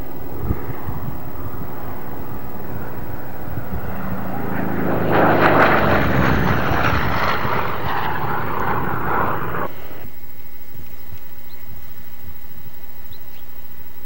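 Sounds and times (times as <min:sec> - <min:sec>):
propeller plane flying by: 0:00.0 - 0:10.1.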